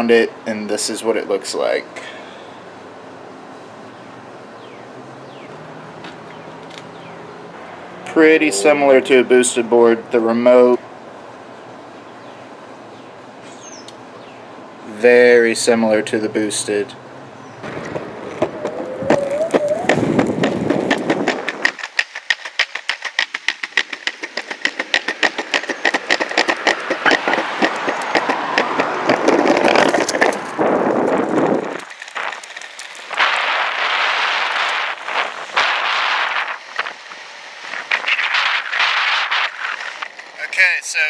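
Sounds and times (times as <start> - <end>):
electric skateboard wheels rumbling: 17.2 - 40.5
wind on microphone: 17.6 - 21.8, 26.4 - 40.4.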